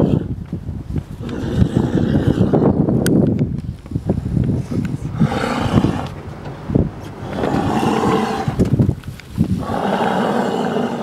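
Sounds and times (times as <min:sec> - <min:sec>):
deep rough roaring: 0:01.2 - 0:02.9, 0:04.6 - 0:08.8, 0:09.6 - 0:11.0.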